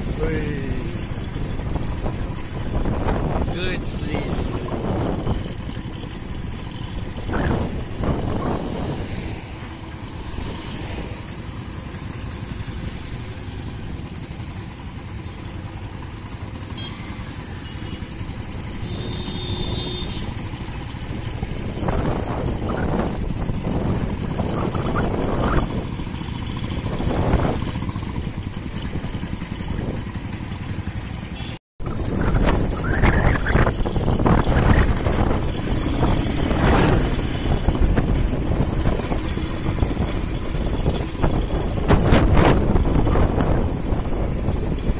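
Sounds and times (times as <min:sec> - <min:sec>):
wind noise: 0:00.0 - 0:09.5, 0:21.0 - 0:30.2, 0:31.8 - 0:44.9
motorcycle engine rumble: 0:00.0 - 0:44.9.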